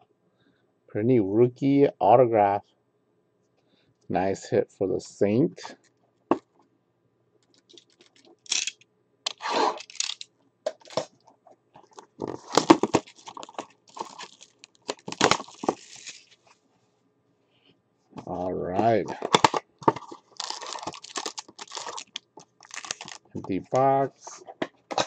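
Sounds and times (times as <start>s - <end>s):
plastic wrapping tearing and crinkling: 9.3s - 10.2s, 11.9s - 16.4s, 19.1s - 23.4s.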